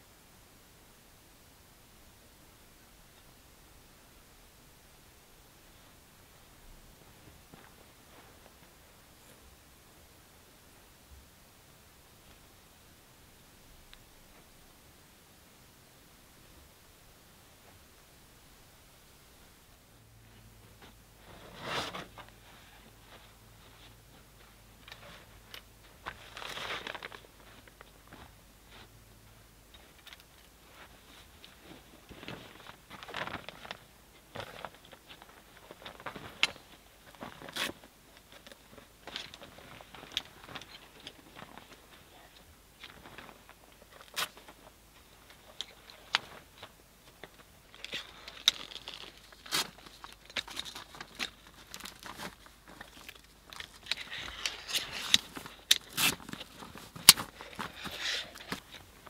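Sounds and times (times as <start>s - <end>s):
fabric rustling and crinkling: 5.7s - 9.4s, 20.2s - 59.0s.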